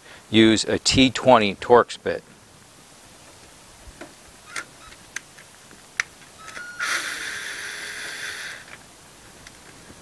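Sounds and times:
cordless drill running: 6.6s - 8.7s.

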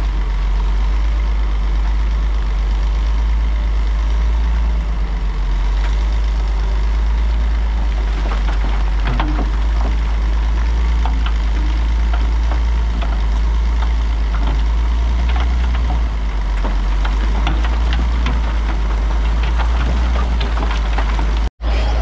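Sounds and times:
diesel heavy machinery rumbling: 0.0s - 22.0s
metal clanks and knocks: 7.0s - 21.5s.

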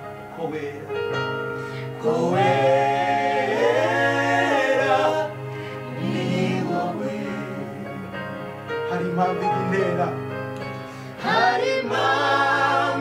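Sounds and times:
choir singing gospel song: 1.7s - 8.6s, 10.9s - 13.0s.

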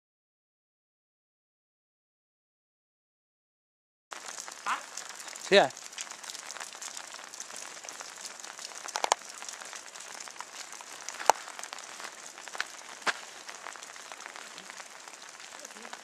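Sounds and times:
close drops ticking: 4.1s - 16.0s
rain pattering: 4.1s - 16.0s.

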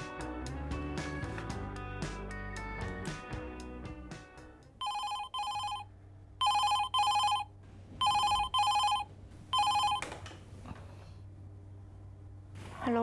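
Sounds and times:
telephone ringing: 4.8s - 10.2s.

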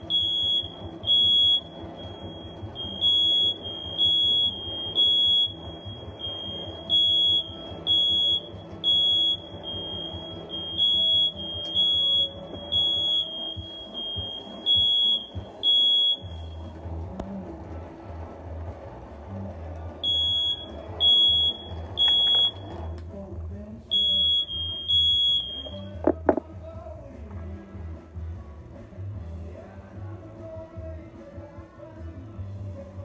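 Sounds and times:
smoke alarm beeping: 0.0s - 16.8s, 20.0s - 23.0s, 23.9s - 26.4s.

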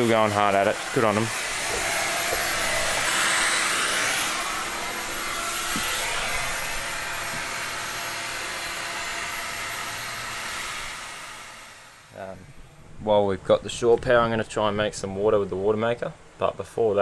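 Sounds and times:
electric polisher running: 0.0s - 12.1s.

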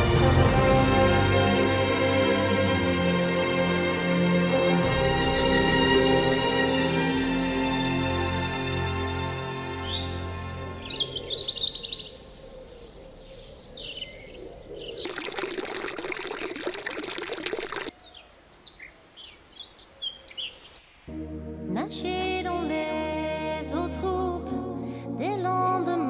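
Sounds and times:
music: 0.0s - 11.2s, 21.1s - 26.0s
small birds chirping: 9.8s - 15.5s, 17.9s - 20.8s
water splashing into fountain basin: 15.0s - 18.0s.

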